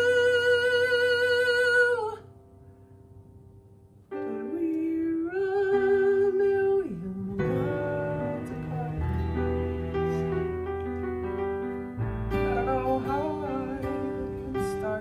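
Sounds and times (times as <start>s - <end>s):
man singing with vibrato: 4.2s - 10.0s, 12.3s - 15.0s
backing track: 6.9s - 15.0s.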